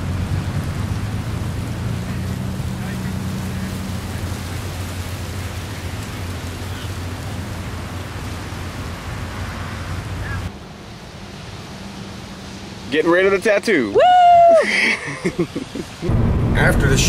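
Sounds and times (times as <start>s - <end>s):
low rumbling: 0.0s - 10.5s, 15.9s - 17.0s
small surf on beach: 0.0s - 17.0s.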